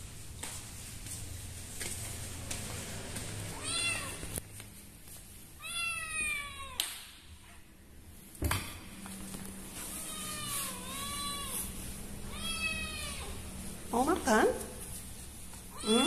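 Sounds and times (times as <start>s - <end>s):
kitten meowing: 5.6s - 6.9s, 12.3s - 13.4s, 15.7s - 16.0s.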